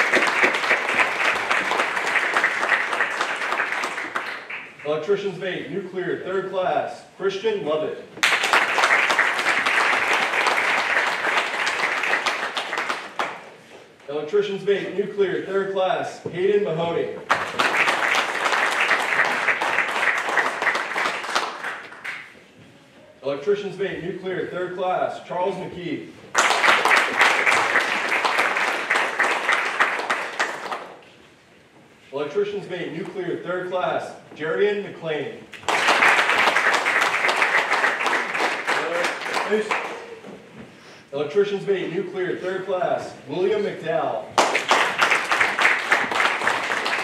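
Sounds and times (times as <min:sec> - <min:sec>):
crowd applauding: 0:00.0 - 0:04.8, 0:08.2 - 0:13.5, 0:17.3 - 0:22.4, 0:26.3 - 0:30.9, 0:35.6 - 0:40.2, 0:44.4 - 0:47.0
people clapping: 0:00.0 - 0:04.9, 0:08.2 - 0:13.8, 0:17.2 - 0:22.5, 0:26.3 - 0:31.1, 0:35.5 - 0:40.4, 0:44.3 - 0:47.0.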